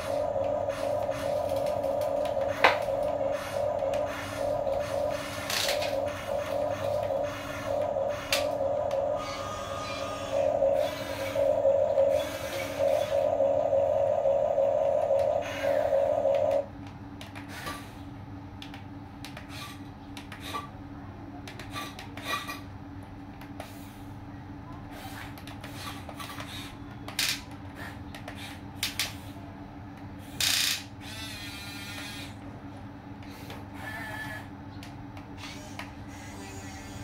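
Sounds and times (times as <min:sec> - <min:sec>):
electric motors whirring: 0:00.0 - 0:16.7.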